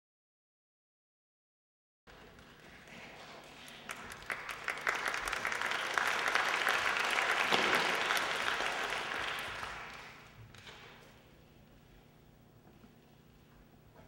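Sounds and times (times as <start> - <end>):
audience applauding: 2.3 - 10.4.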